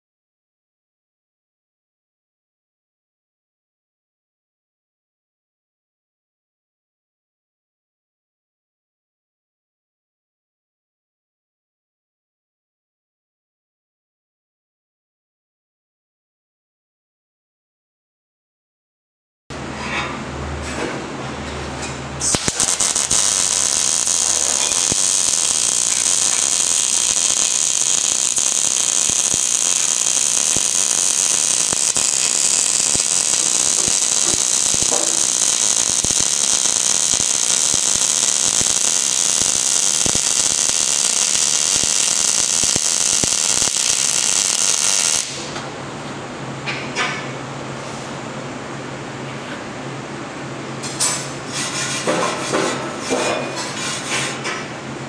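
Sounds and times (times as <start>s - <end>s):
welding arc hissing: 22.2s - 45.5s.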